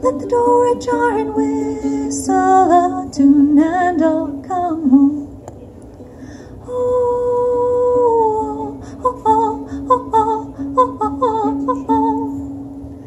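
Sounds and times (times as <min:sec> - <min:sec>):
strummed ukulele: 0:00.0 - 0:05.1, 0:07.6 - 0:12.4.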